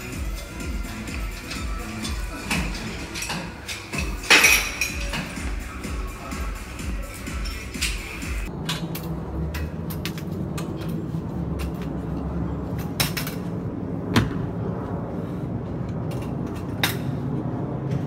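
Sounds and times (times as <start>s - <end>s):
weight equipment clanking: 1.3s - 5.4s
low hum: 8.3s - 18.0s.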